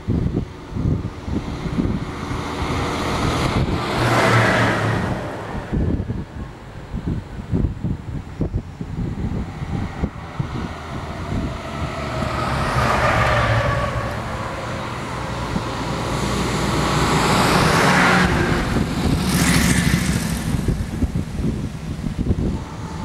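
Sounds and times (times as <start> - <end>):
trucks driving past: 0.0 - 23.0
tyres on road: 0.0 - 23.0
motorcycles driving past: 9.5 - 21.6.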